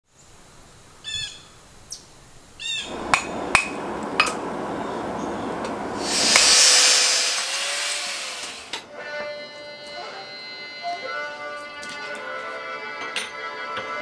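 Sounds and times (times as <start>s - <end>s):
loud hiss: 2.6s - 9.0s
steady rushing noise: 2.8s - 8.9s.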